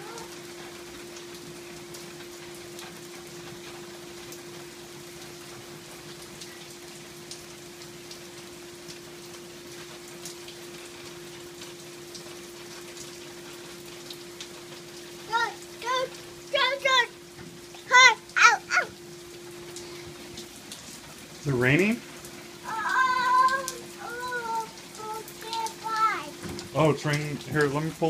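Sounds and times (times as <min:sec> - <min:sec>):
steady rain falling: 0:00.0 - 0:28.0
steady humming tone: 0:08.4 - 0:25.3.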